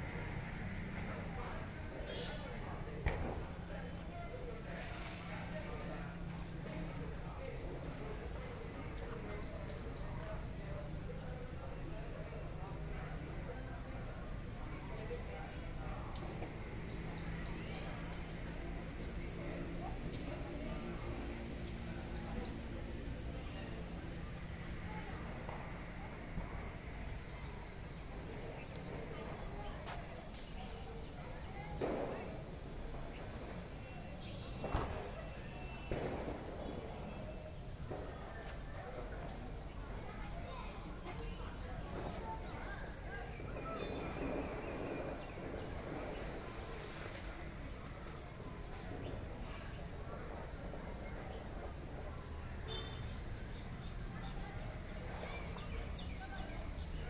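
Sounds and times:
low background noise: 0:00.0 - 0:57.0
bird chirping: 0:24.1 - 0:25.5.

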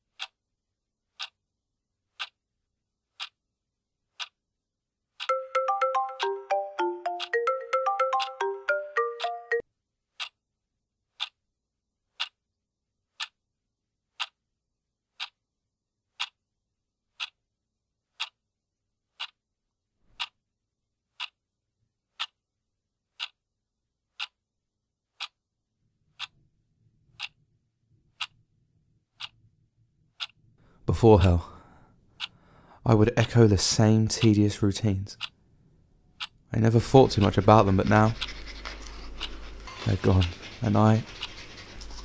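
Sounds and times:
clock ticking: 0:00.1 - 0:00.4, 0:01.1 - 0:01.4, 0:02.1 - 0:02.4, 0:03.1 - 0:03.4, 0:04.1 - 0:04.4, 0:05.2 - 0:09.6, 0:10.2 - 0:10.4, 0:11.1 - 0:11.4, 0:12.1 - 0:12.4, 0:13.1 - 0:13.4, 0:14.1 - 0:14.4, 0:15.1 - 0:15.4, 0:16.1 - 0:16.4, 0:17.1 - 0:17.4, 0:18.1 - 0:18.4, 0:19.1 - 0:19.4, 0:20.2 - 0:20.4, 0:21.1 - 0:21.4, 0:22.1 - 0:22.4, 0:23.1 - 0:23.4, 0:24.1 - 0:24.4, 0:25.1 - 0:25.4, 0:26.1 - 0:26.4, 0:27.1 - 0:27.4, 0:28.1 - 0:28.4, 0:29.1 - 0:29.4, 0:30.1 - 0:34.5, 0:35.2 - 0:35.5, 0:36.1 - 0:42.0
phone alarm tone: 0:05.3 - 0:09.6.

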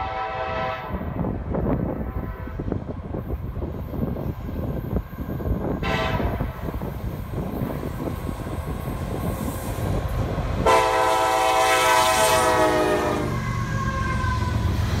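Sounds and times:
train horn blast: 0:00.0 - 0:01.2, 0:02.0 - 0:02.7, 0:05.8 - 0:06.6, 0:10.6 - 0:14.1
diesel locomotive rumbling past: 0:00.0 - 0:15.0.

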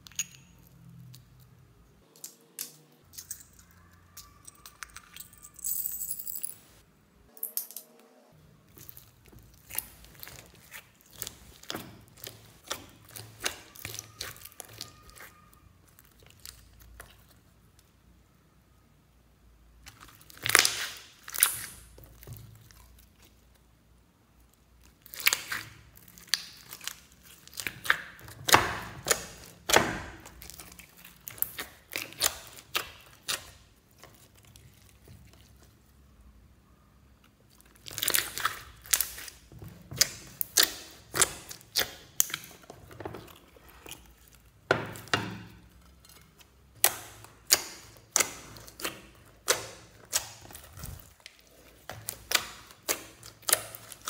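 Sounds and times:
hands squishing slime: 0:08.6 - 0:17.7, 0:19.8 - 0:23.8, 0:24.5 - 0:36.0, 0:37.2 - 0:54.0.

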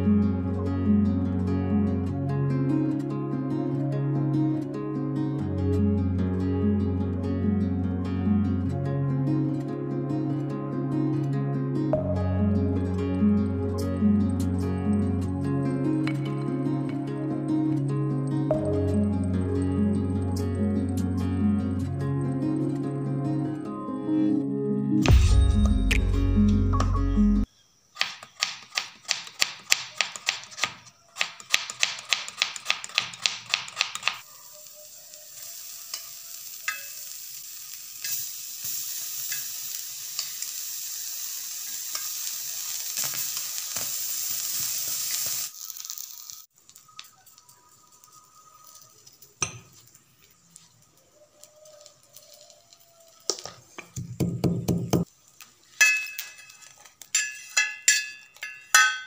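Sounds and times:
fish sizzling on iron pan: 0:34.2 - 0:53.9, 0:55.0 - 0:58.8.

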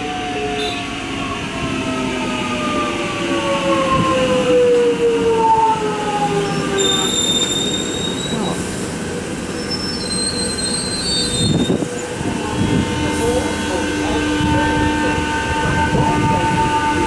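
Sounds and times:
wheels squealing on rails: 0:06.6 - 0:14.6.

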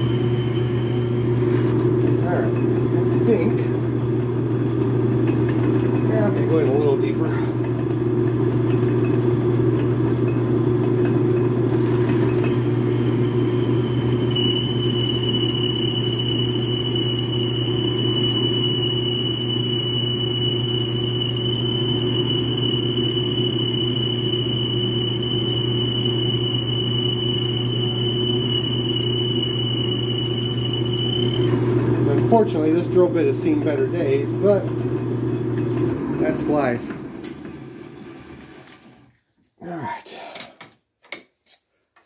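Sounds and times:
drill bit squealing: 0:00.0 - 0:07.4, 0:12.2 - 0:35.6
lathe motor humming: 0:00.0 - 0:37.2.

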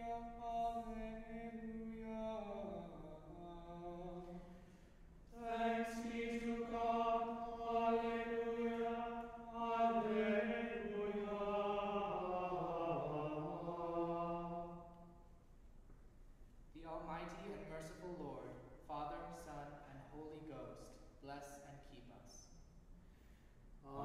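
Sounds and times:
men chanting in unison: 0:05.3 - 0:14.6.

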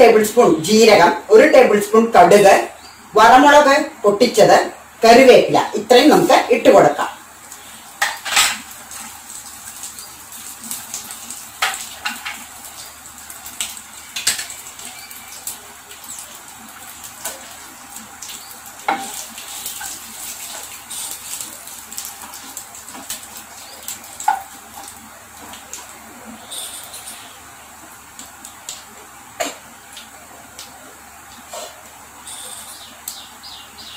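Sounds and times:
spices sizzling in hot oil: 0:05.9 - 0:33.9
wooden spatula stirring in pan: 0:14.0 - 0:27.2, 0:28.2 - 0:32.7.

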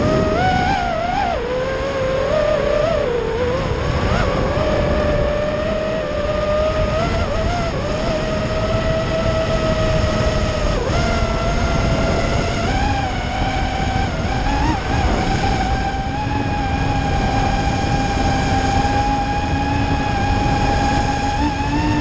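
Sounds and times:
drone motors whining: 0:00.0 - 0:22.0
wind rumble: 0:00.0 - 0:22.0.

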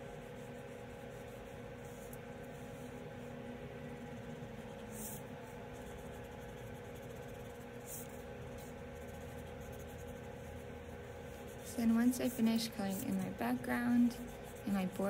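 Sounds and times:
steady low hum: 0:00.0 - 0:15.0
marker rubbing on paper: 0:04.2 - 0:15.0.

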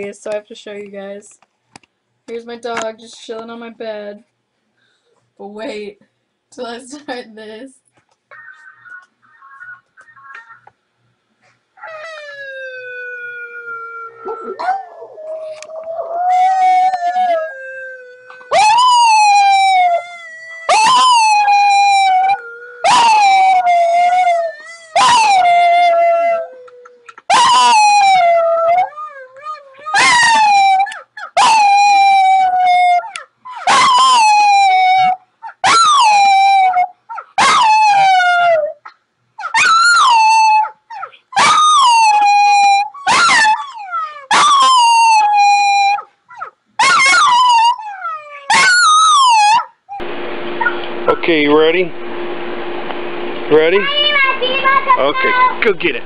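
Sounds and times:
small dog howling: 0:11.8 - 0:38.8, 0:39.4 - 0:50.0.

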